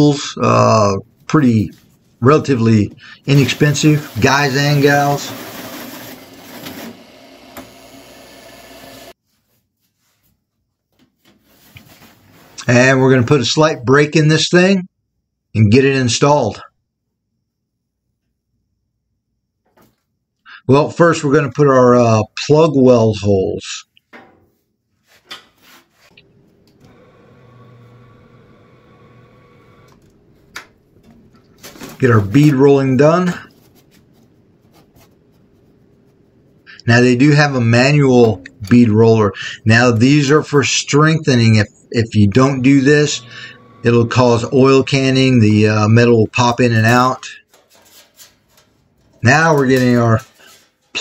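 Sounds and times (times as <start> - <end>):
drill press cutting steel: 3.3 - 9.2, 26.1 - 30.3, 41.6 - 45.5
electric motor hum: 3.4 - 9.2, 26.1 - 31.3, 41.9 - 45.5
sheet steel clattering: 46.9 - 51.0.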